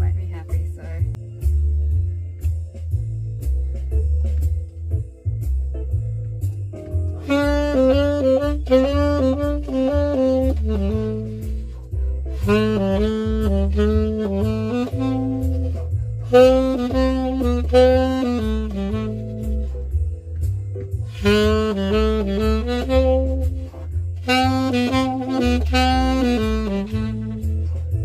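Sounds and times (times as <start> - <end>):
backing track bass line: 0.0 - 28.0
tenor saxophone improvising: 7.2 - 20.0, 21.0 - 28.0.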